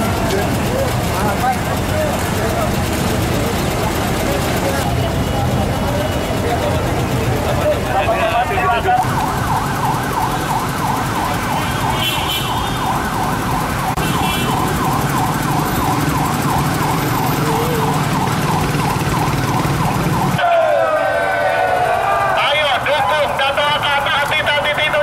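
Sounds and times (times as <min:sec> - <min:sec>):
low rumble of vehicle engines: 0:00.0 - 0:25.0
siren in fast yelp: 0:08.2 - 0:25.0.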